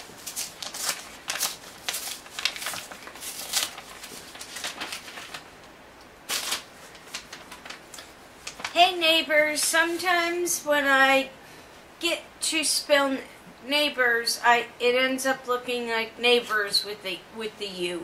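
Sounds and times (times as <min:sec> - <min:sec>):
paper envelope rustling: 0:00.0 - 0:05.7, 0:06.3 - 0:10.4.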